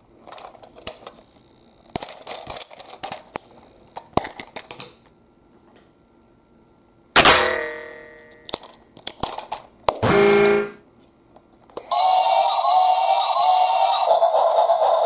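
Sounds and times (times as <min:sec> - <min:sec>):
short electronic tone: 0:10.0 - 0:10.8
toy electronic tune: 0:11.9 - 0:15.0.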